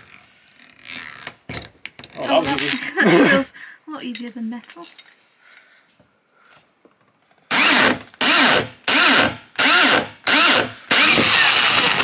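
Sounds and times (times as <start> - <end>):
drill whining: 7.5 - 12.0.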